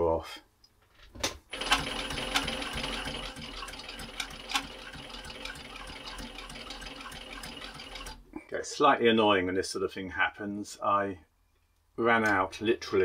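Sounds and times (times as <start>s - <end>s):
sewing machine motor whir: 1.5s - 8.2s.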